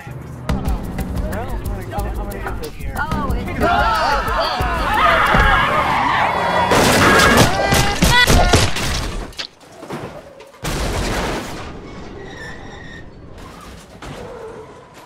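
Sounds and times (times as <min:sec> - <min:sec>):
car crash impacts: 0:06.6 - 0:09.3, 0:10.6 - 0:12.2.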